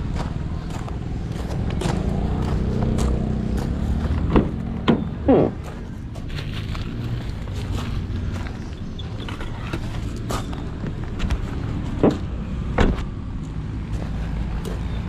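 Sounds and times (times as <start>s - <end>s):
low rumble of handling and wind: 0.0s - 15.0s
car door shutting thumps: 12.0s - 13.0s.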